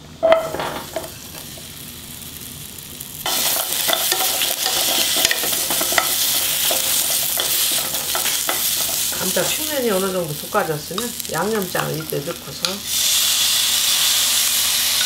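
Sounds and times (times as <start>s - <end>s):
potatoes sizzling in oil: 0.4s - 15.0s.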